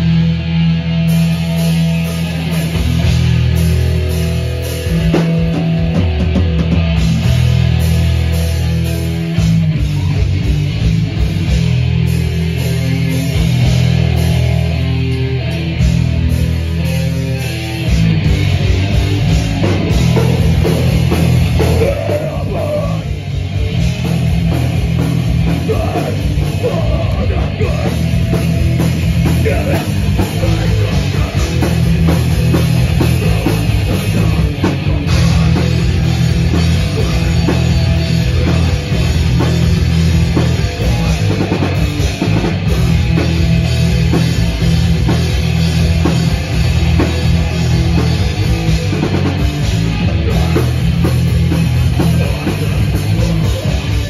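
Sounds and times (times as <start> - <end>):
distorted bass and guitar chords: 0.0 - 54.0
drum kit: 0.0 - 54.0
vocals: 20.1 - 23.3, 25.4 - 42.2, 50.0 - 54.0.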